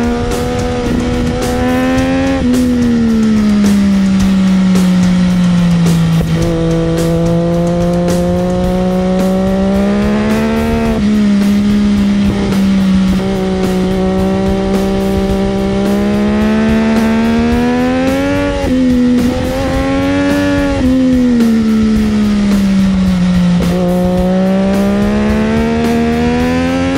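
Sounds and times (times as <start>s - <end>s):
motorcycle engine at high revs: 0.0s - 26.9s
wind noise: 0.0s - 26.9s.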